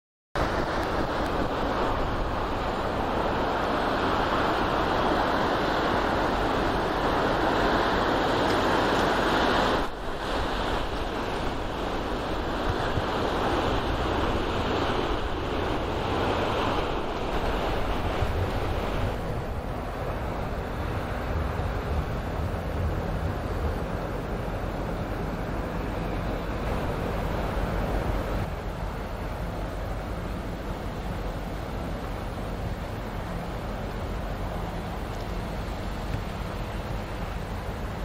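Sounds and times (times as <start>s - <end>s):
wind rushing: 0.4s - 28.6s
bow wave breaking along hull: 0.4s - 38.0s
faint low engine hum: 0.5s - 38.0s.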